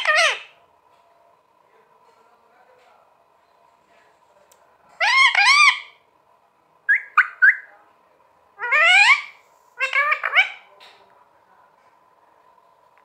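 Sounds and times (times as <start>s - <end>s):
parakeet calling: 0.0s - 0.6s, 5.0s - 6.0s, 6.9s - 7.7s, 8.6s - 10.7s.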